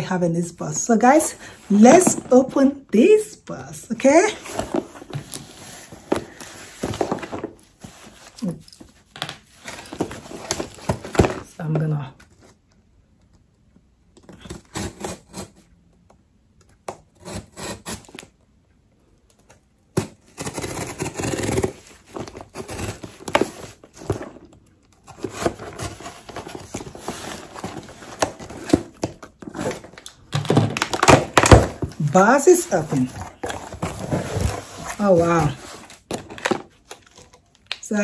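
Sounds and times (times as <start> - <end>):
paper rustling and crinkling: 4.3 - 11.5, 21.0 - 37.6
packing tape tearing: 20.0 - 23.6.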